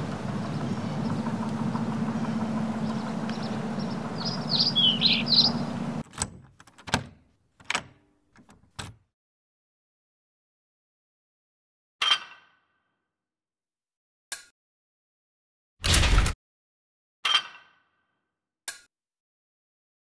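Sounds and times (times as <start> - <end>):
birds chirping: 0.0 - 6.0
steady low hum: 0.0 - 6.0
front door opening: 0.0 - 9.0
key turning in deadbolt lock: 6.0 - 9.0.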